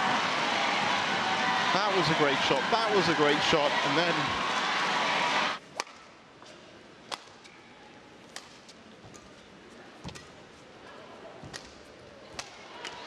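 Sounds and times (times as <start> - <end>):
faint arena background: 0.0 - 13.0.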